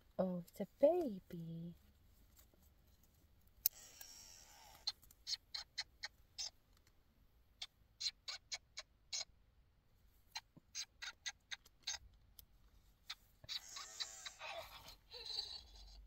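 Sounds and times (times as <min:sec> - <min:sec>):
toy mechanism clicking: 0:03.6 - 0:05.0.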